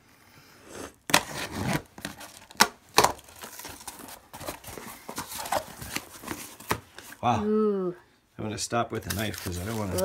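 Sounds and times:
cardboard box ripping open: 1.1s - 6.8s, 9.0s - 10.0s.

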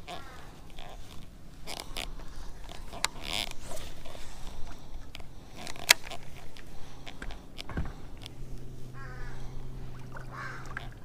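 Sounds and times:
fishing reel clicks: 0.0s - 8.3s
scratchy rustle: 0.0s - 10.6s.

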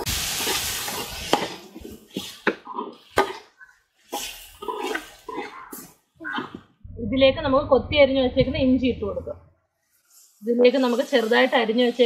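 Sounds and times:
onions sizzling in oil: 0.0s - 5.8s, 9.9s - 12.0s.

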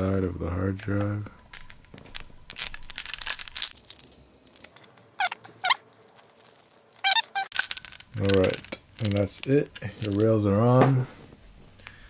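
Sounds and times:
high squeaks: 2.5s - 8.8s.

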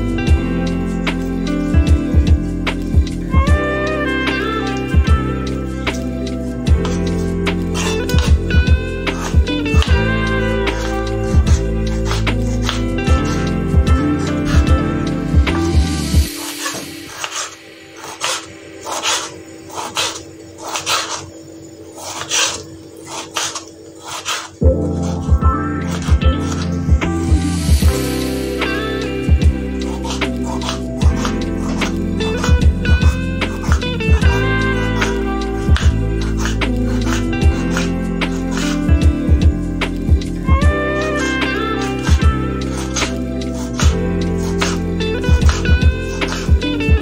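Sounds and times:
background music with held notes: 0.0s - 47.0s
knife slicing tomato on board: 10.7s - 21.3s.

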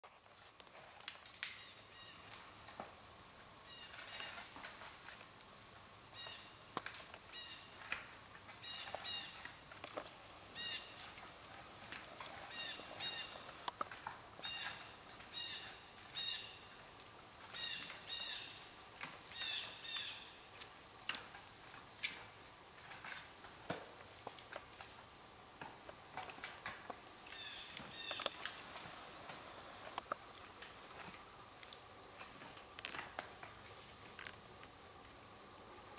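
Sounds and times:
wood and branches cracking: 0.0s - 35.2s
bird chirping: 1.5s - 2.3s, 6.1s - 6.6s, 7.3s - 7.9s, 8.6s - 9.6s, 10.5s - 11.1s, 12.3s - 13.6s, 14.4s - 16.8s, 17.5s - 18.7s, 19.3s - 20.5s, 27.3s - 28.4s.

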